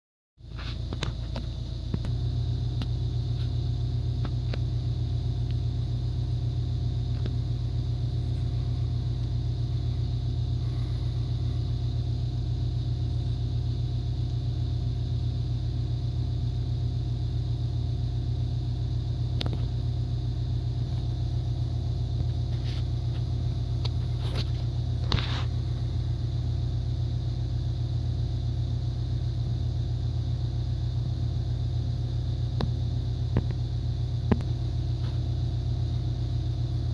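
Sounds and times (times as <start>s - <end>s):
low hum: 0.4s - 36.9s.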